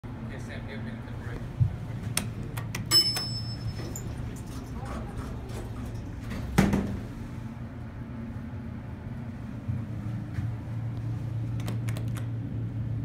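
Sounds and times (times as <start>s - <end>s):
elevator low hum: 0.0s - 13.0s
elevator doors shutting: 2.6s - 7.2s.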